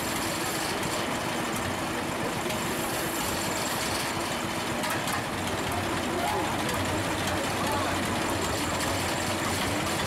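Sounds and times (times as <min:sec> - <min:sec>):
tractor engine idling: 0:03.9 - 0:10.0.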